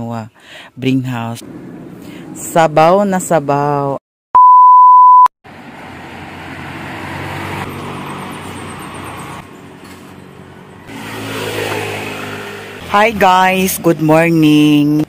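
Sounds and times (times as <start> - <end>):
passing motor vehicles: 1.2 - 3.8, 5.5 - 15.0
test-tone beep: 4.4 - 5.3.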